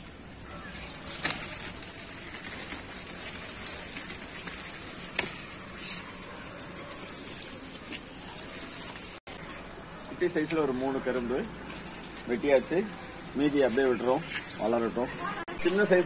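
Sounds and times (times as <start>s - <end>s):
rustling dry leaves: 0.0s - 16.0s
stalk cracking: 0.0s - 16.0s
blade cutting cane stalks: 0.6s - 6.7s.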